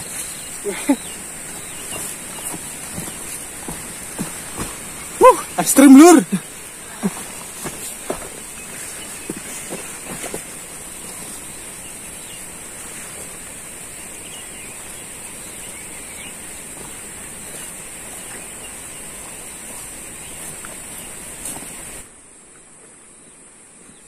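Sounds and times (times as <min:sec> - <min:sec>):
footfalls on a trail: 0:00.0 - 0:14.0
constant high hiss: 0:00.0 - 0:24.0.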